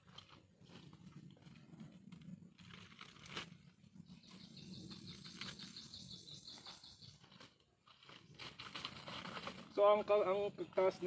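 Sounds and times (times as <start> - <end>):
dry leaves rustling and crackling: 2.5 - 3.8, 7.2 - 10.2.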